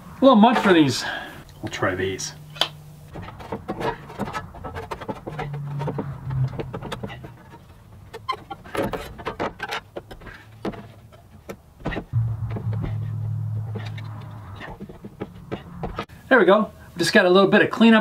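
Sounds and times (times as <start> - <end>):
low steady hum: 12.1 - 17.0.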